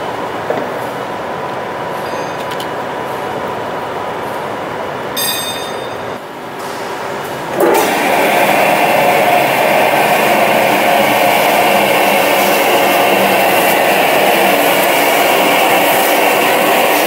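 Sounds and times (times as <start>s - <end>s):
machinery whirring: 7.3s - 17.0s.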